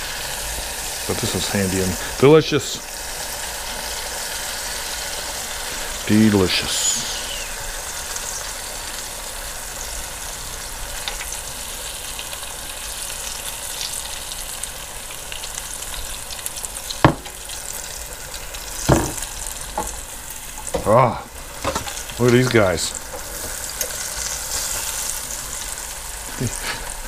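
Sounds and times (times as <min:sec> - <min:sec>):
bacon sizzling in deep fryer: 0:00.0 - 0:27.0
sharp knock: 0:17.1 - 0:17.4, 0:18.9 - 0:19.2.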